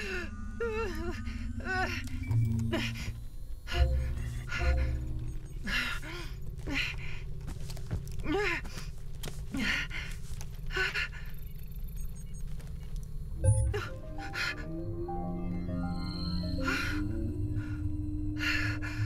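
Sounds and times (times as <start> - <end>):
woman gasping and whimpering: 0.0 - 7.3
low hum: 0.0 - 19.0.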